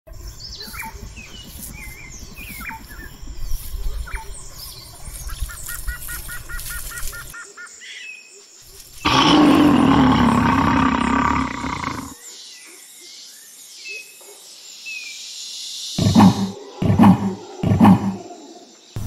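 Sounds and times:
deep animal roar: 0:09.1 - 0:12.2, 0:16.0 - 0:18.7.

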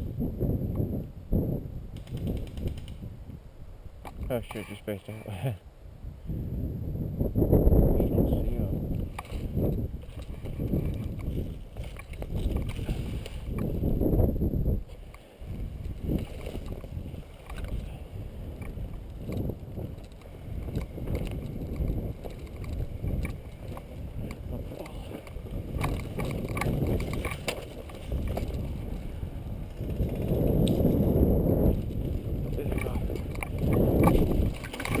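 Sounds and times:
wind rumble: 0:00.0 - 0:04.5, 0:05.7 - 0:35.0
twigs cracking: 0:08.9 - 0:13.8, 0:15.0 - 0:17.8, 0:18.5 - 0:31.1, 0:31.7 - 0:35.0
microphone rubbing: 0:15.6 - 0:35.0.

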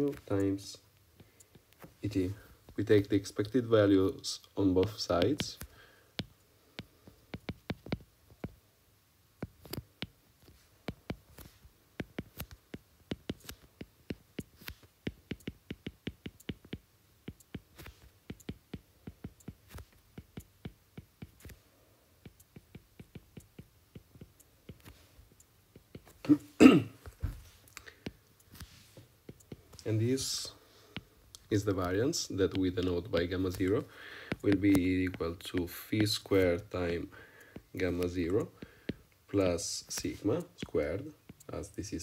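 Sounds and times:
stylus tapping on tablet screen: 0:00.0 - 0:02.0, 0:04.6 - 0:08.6, 0:09.4 - 0:21.6, 0:22.2 - 0:26.4, 0:27.0 - 0:41.8
person clearing throat: 0:26.2 - 0:27.1.

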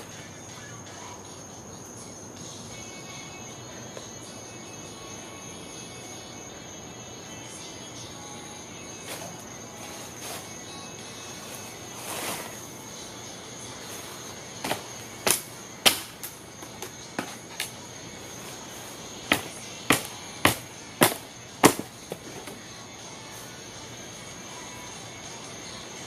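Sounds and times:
hammer striking wood: 0:14.7 - 0:16.2, 0:19.3 - 0:22.5.

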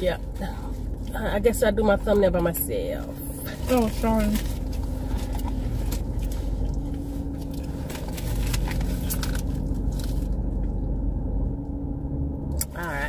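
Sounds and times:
car cabin rumble: 0:00.0 - 0:13.0
wrappers crinkling: 0:03.4 - 0:10.4.

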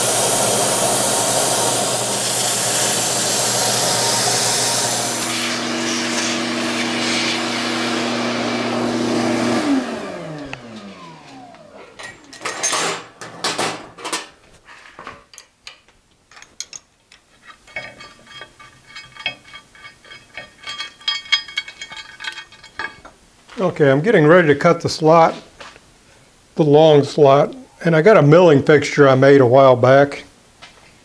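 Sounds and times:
vacuum motor winding down: 0:00.0 - 0:12.5
shop vacuum running: 0:00.0 - 0:13.9
metallic clinks and knocks: 0:12.0 - 0:14.3, 0:15.3 - 0:23.1.

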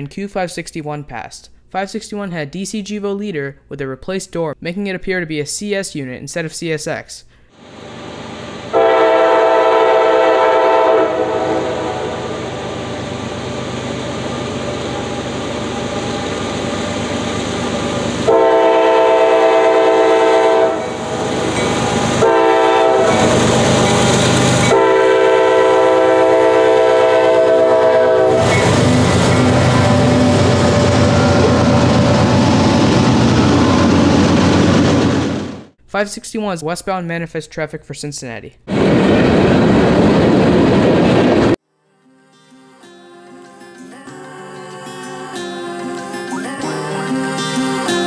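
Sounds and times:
locomotive air horn blasts: 0:08.7 - 0:12.5, 0:18.2 - 0:32.6
locomotive engines rumbling: 0:11.1 - 0:35.6.

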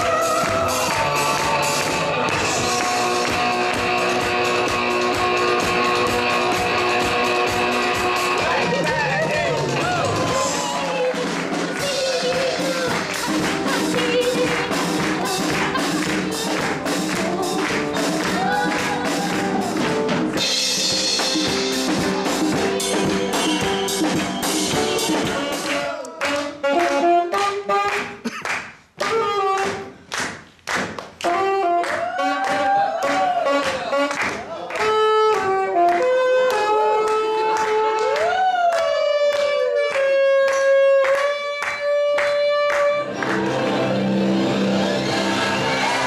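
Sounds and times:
saxophone melody: 0:00.0 - 0:09.8, 0:11.1 - 0:28.3, 0:29.0 - 0:30.1, 0:31.2 - 0:46.0
drum kit beat with cymbals: 0:00.0 - 0:27.1.

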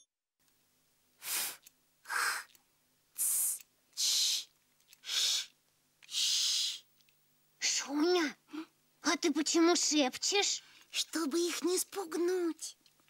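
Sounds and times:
faint steady hum: 0:00.4 - 0:13.0
girl whispering hissing sounds: 0:01.2 - 0:02.6, 0:03.2 - 0:06.9, 0:07.6 - 0:08.7.

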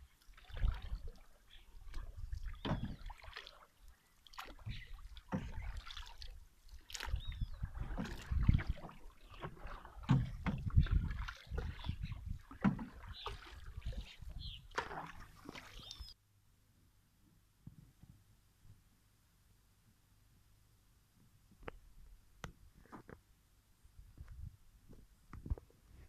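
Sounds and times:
paddles dipping in water: 0:00.0 - 0:16.2.

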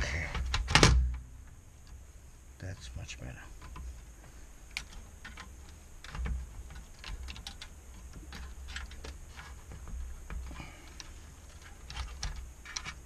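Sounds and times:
low steady hum: 0:00.0 - 0:13.0
light clicks of handling parts: 0:03.6 - 0:13.0.

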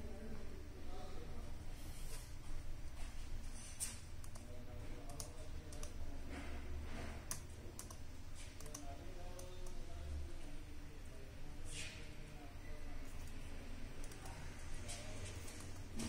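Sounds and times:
laptop keys clicking: 0:07.3 - 0:08.0, 0:08.6 - 0:09.8, 0:14.0 - 0:14.4.

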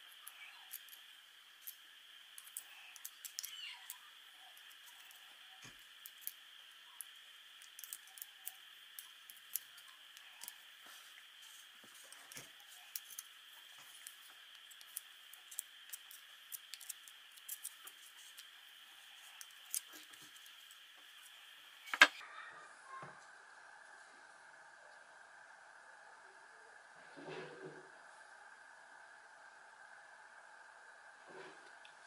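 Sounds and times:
screwdriver clicking and scraping metal: 0:13.9 - 0:18.5.

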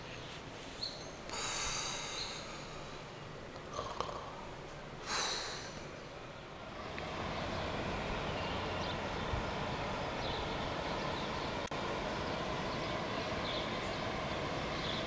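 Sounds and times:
breathy exhale: 0:01.3 - 0:06.0.

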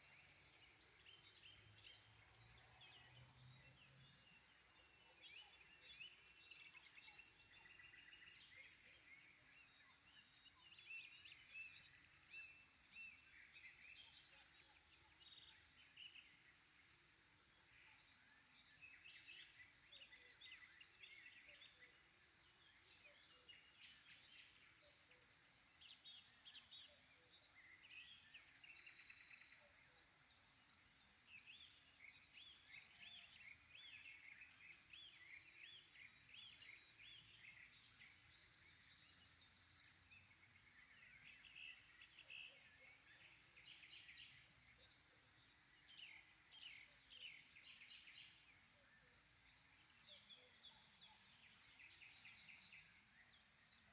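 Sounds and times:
songbirds chirping and trilling: 0:00.0 - 0:53.9.

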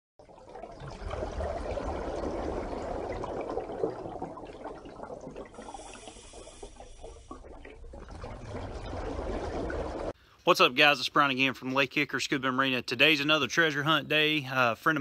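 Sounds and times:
water bubbling and gurgling: 0:00.2 - 0:10.2.

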